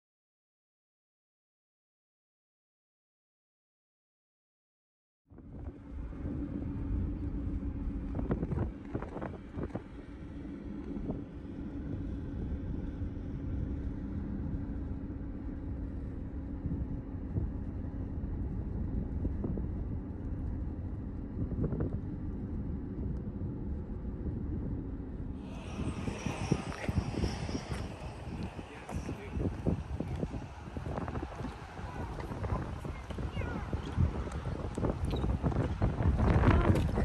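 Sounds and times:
faint steady drone: 0:05.4 - 0:37.0
car interior rumble: 0:25.5 - 0:37.0.

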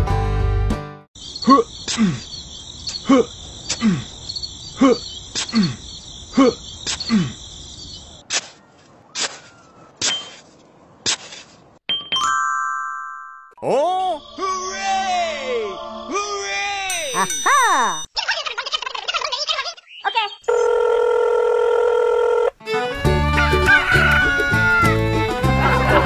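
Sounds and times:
crickets chirring: 0:01.2 - 0:08.2
hoe digging into sand: 0:09.2 - 0:11.6
bright chime: 0:16.9 - 0:18.1.

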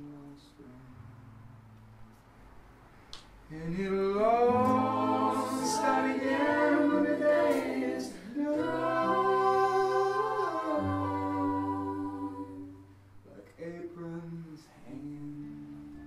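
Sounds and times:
group singing in harmony: 0:04.3 - 0:12.9.

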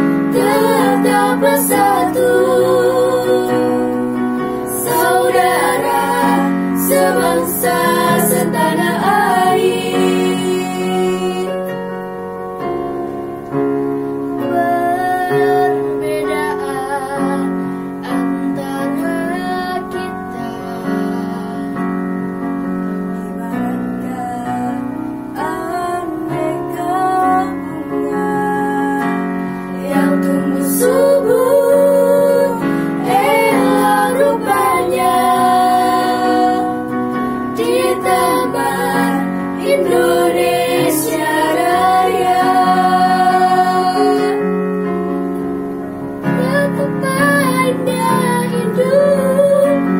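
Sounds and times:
girls singing together: 0:00.0 - 0:11.9, 0:14.2 - 0:21.9, 0:23.3 - 0:44.6, 0:46.2 - 0:49.9
electronic keyboard chords: 0:00.0 - 0:49.9.

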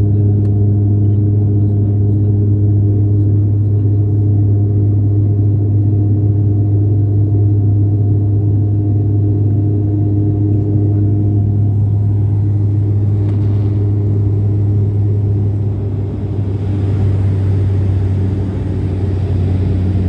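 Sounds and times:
propeller plane cabin hum: 0:00.0 - 0:20.0
faint steady tones: 0:08.3 - 0:20.0.

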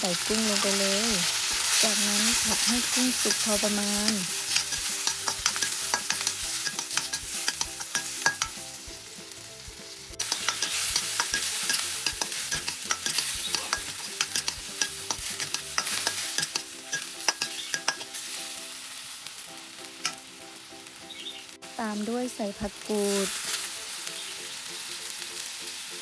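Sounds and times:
prawns sizzling in oil: 0:00.0 - 0:26.0
spatula scraping wok: 0:00.1 - 0:18.3
spatula clicking against wok: 0:03.2 - 0:08.6, 0:10.2 - 0:18.1, 0:20.0 - 0:20.2.

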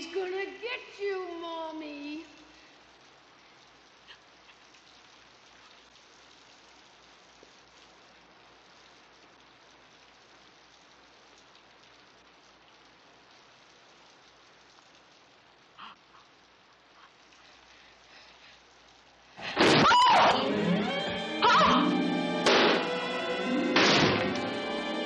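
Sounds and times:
faint steady rain: 0:00.0 - 0:25.0
brief sharp sound: 0:22.4 - 0:23.0.

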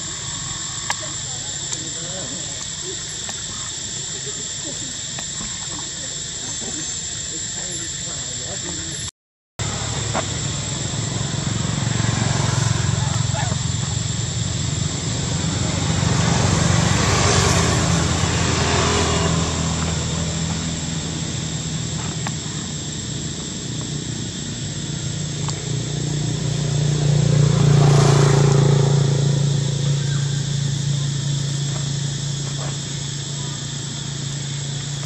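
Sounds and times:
low engine hum: 0:09.6 - 0:35.0.

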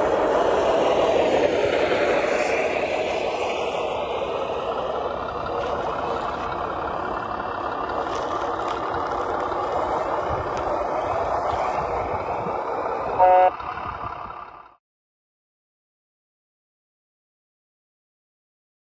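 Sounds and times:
toy truck rolling over gravel: 0:02.0 - 0:13.0
short horn toot: 0:13.2 - 0:13.6.

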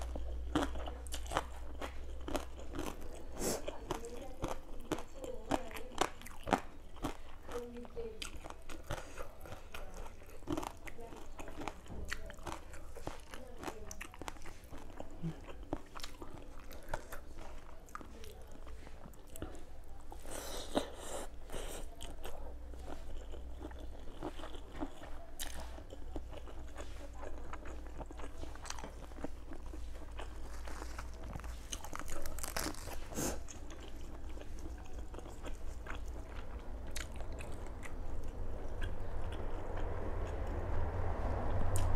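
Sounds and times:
crunchy chewing: 0:00.0 - 0:41.9
steady low hum: 0:25.7 - 0:41.9.

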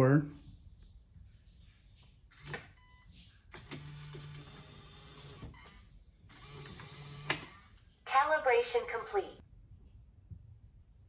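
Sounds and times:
lock motor whirring: 0:03.6 - 0:05.7, 0:06.3 - 0:07.6.

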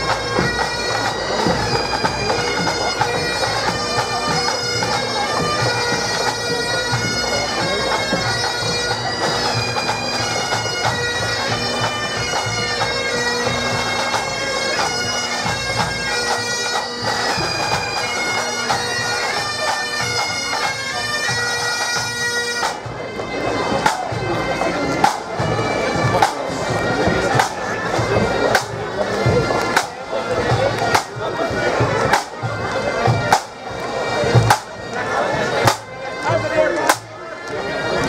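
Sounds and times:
bagpipes playing a marching tune: 0:00.0 - 0:38.0
sharp drum beats: 0:23.7 - 0:33.6, 0:34.2 - 0:34.8, 0:35.6 - 0:37.1.

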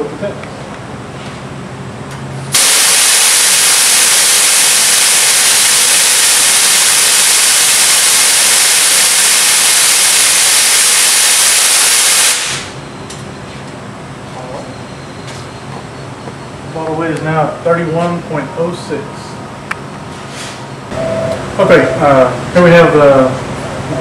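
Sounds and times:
loud gas hiss: 0:02.5 - 0:12.8.

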